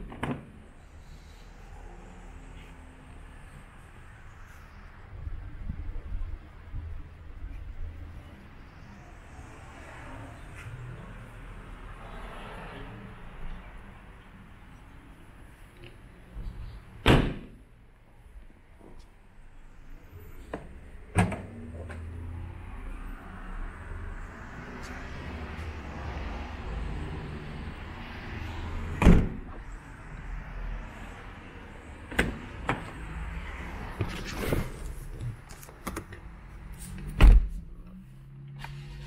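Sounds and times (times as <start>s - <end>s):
car door thumping shut: 17.0s - 17.6s, 29.0s - 29.4s.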